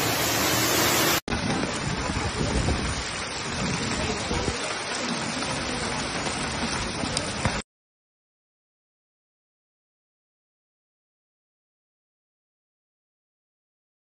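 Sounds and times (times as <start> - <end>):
heavy rain pouring: 0.0 - 7.6.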